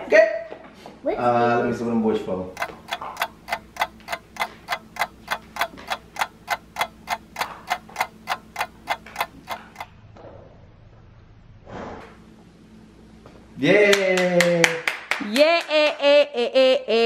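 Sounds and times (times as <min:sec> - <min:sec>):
rapid mechanical clicking: 0:02.5 - 0:09.9.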